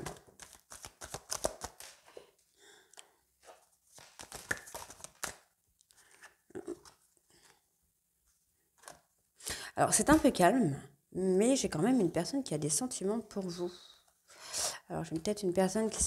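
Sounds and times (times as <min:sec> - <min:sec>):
cards shuffling: 0:00.0 - 0:02.1, 0:03.4 - 0:07.6.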